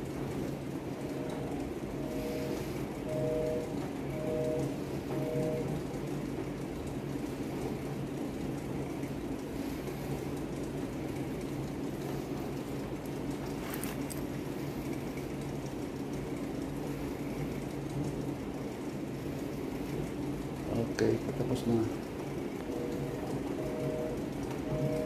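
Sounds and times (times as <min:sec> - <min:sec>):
exercise bike whirring: 0:00.0 - 0:25.0.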